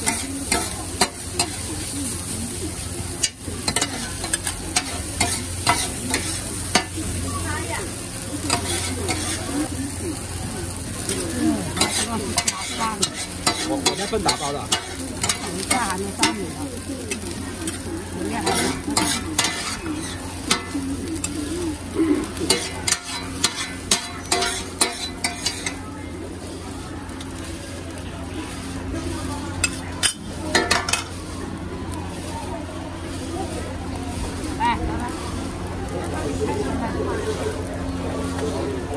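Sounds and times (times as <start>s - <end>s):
metal spatula scraping on griddle: 0.0s - 9.9s, 11.0s - 25.9s, 28.4s - 31.5s
steady sizzle: 0.0s - 38.9s.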